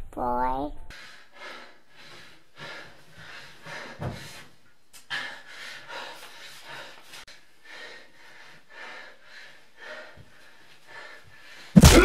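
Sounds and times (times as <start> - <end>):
person breathing hard and fast: 0.9 - 11.9.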